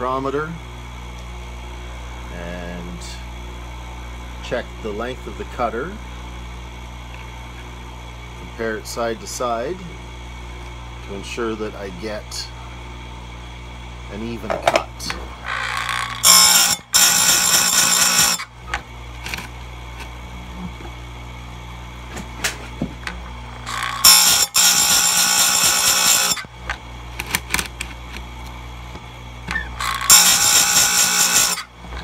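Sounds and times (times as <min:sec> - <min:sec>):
grinder motor humming: 0:07.0 - 0:32.0
grinding wheel rasping on metal: 0:15.4 - 0:18.5, 0:23.6 - 0:26.5, 0:29.5 - 0:32.0.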